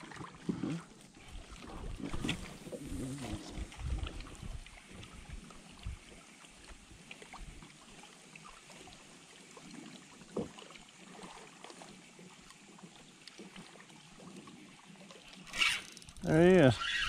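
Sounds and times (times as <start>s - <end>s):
water lapping against hull: 0.0s - 17.0s
fishing reel clicking: 15.4s - 17.0s.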